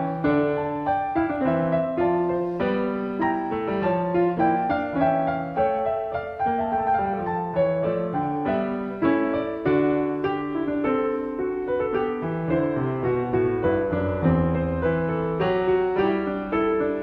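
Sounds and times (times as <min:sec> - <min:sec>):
solo piano music: 0:00.0 - 0:17.0.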